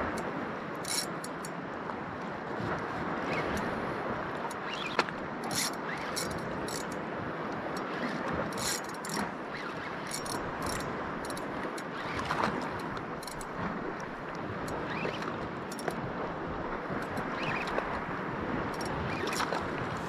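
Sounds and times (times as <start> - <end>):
rushing water: 0.0 - 20.0
wind: 0.0 - 20.0
fishing reel rasping: 0.8 - 1.5, 4.5 - 7.0, 7.7 - 13.6, 18.7 - 19.6.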